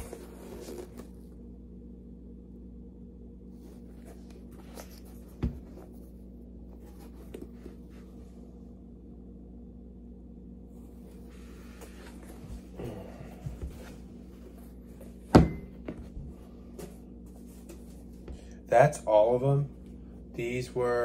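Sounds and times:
shoe rustling and scuffing: 0.0 - 1.2, 3.5 - 8.4, 10.9 - 18.4
steady low hum: 0.0 - 21.0.

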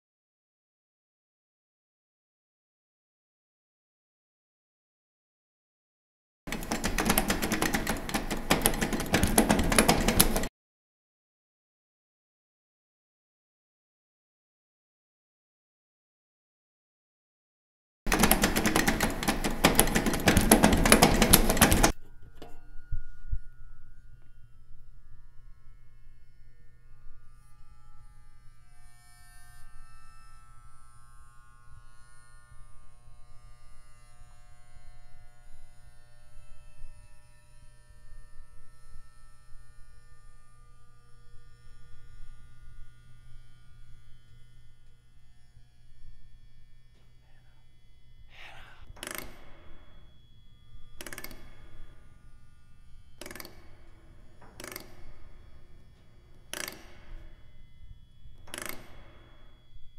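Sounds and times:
low steady hum: 19.5 - 59.9
faint drawn-out tones: 22.0 - 32.8.

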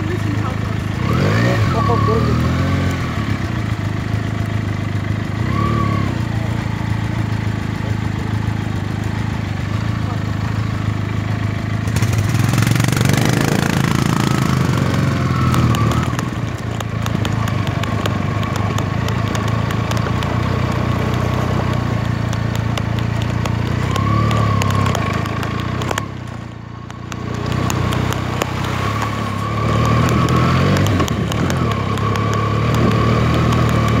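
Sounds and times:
motorcycle engine running: 0.0 - 34.0
stones clicking and rattling: 15.4 - 34.0.

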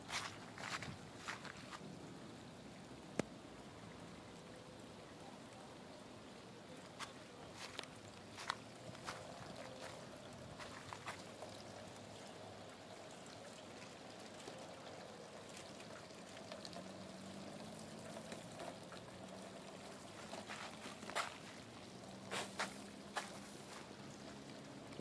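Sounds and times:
water rushing down downspout: 0.0 - 25.0.

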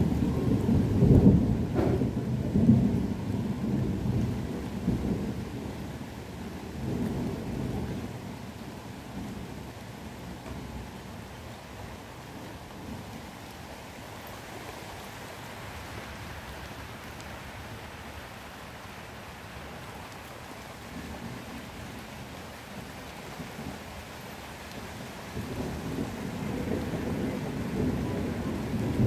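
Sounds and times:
thunder rumbling: 0.0 - 11.3, 24.6 - 29.0
rain falling: 0.0 - 29.0.

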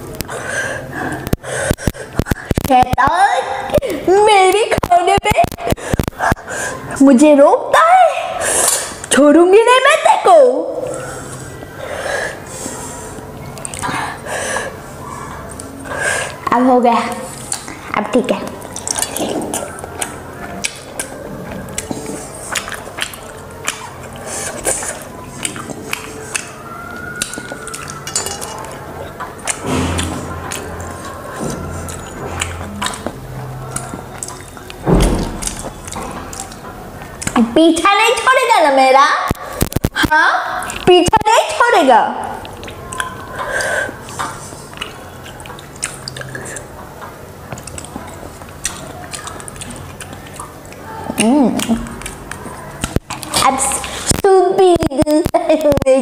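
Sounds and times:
mouth eating sounds: 0.0 - 7.0, 10.8 - 37.6, 39.3 - 41.3, 42.2 - 55.8
slurping and chewing: 10.9 - 16.5, 17.1 - 17.9, 18.5 - 37.4, 39.3 - 40.9, 42.4 - 54.2
fingers squelching wet noodles: 18.5 - 34.8, 42.4 - 54.2.

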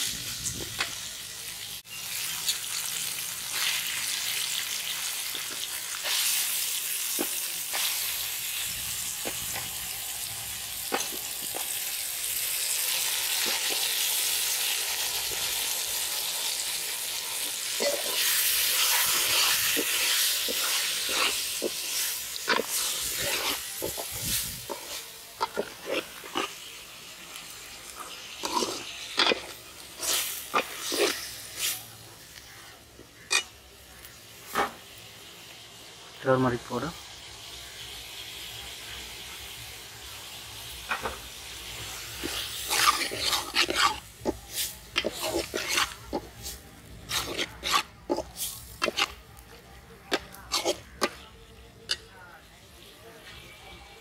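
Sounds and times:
food sizzling in oil: 0.0 - 54.0
ladle scraping and clinking on pan: 45.0 - 46.5, 47.1 - 49.2, 50.1 - 51.2.

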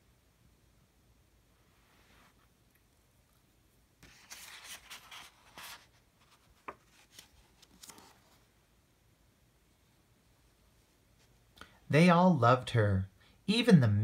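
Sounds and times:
book page turning: 4.0 - 8.4.

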